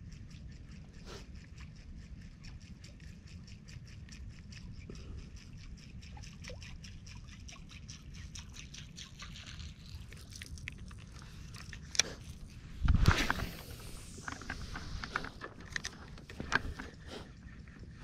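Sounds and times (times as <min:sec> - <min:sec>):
shallow water sloshing: 0:00.0 - 0:18.0
low rumble: 0:10.8 - 0:18.0.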